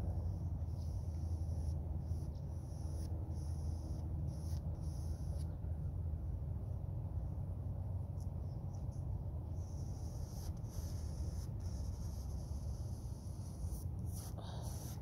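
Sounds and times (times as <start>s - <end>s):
paintbrush rasping on canvas: 0.0s - 5.5s, 8.8s - 15.0s.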